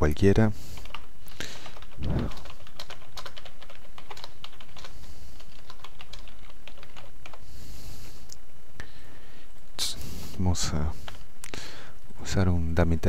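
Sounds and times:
steady low hum: 0:00.0 - 0:13.0
computer keyboard typing: 0:00.8 - 0:07.4.

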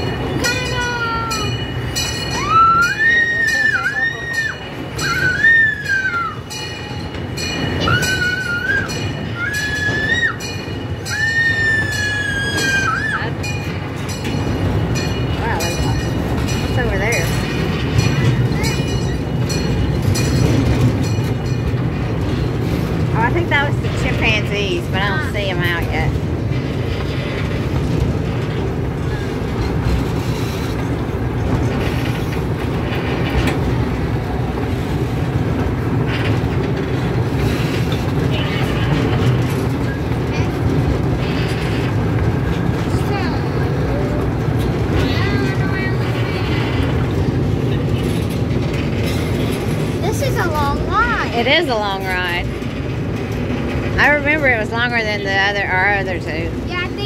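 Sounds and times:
small electric train rumbling: 0:00.0 - 0:57.0
people screaming: 0:02.3 - 0:06.6, 0:07.8 - 0:13.4.

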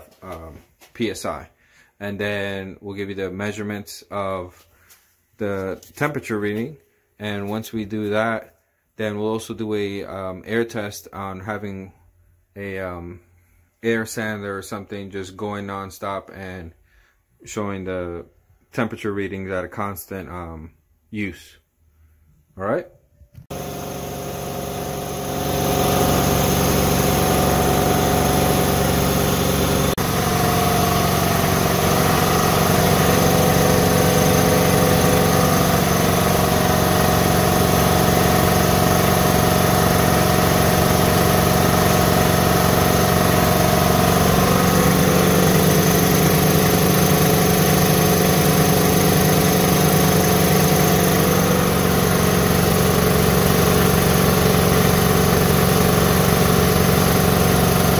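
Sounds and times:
air compressors running: 0:23.5 - 0:57.9.

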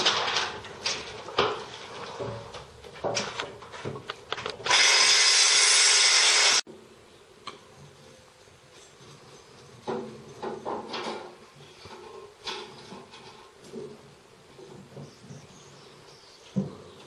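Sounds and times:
wires clicking and rustling in metal panel: 0:00.0 - 0:04.7, 0:09.8 - 0:14.9
loud steady hiss: 0:04.7 - 0:07.1.

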